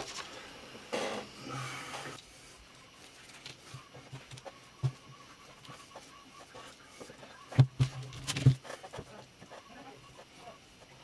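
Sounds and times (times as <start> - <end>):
louder knocks and thumps: 7.5 - 8.7.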